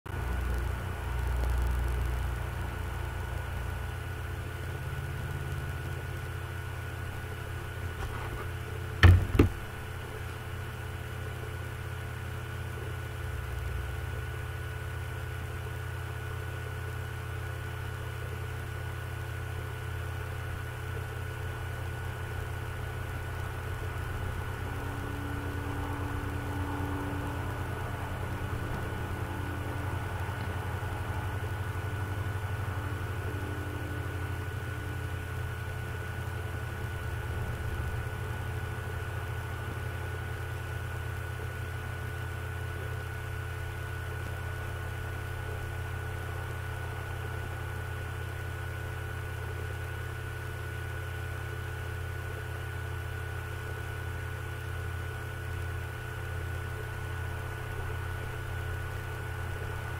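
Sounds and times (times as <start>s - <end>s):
sharp knocks: 8.0s - 9.8s.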